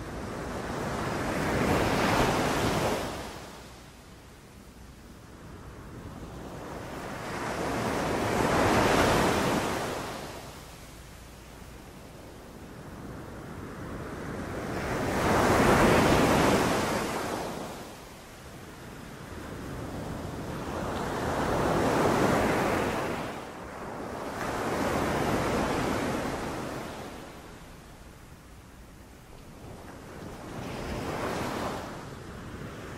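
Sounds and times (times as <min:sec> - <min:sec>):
sea waves breaking on beach: 0:06.8 - 0:10.7.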